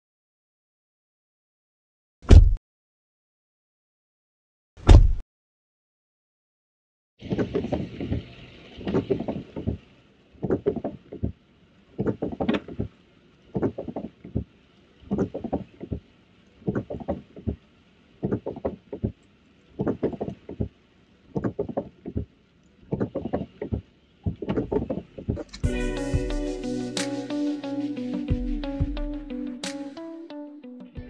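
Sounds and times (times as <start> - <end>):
windshield wipers rubbing: 21.4 - 25.6.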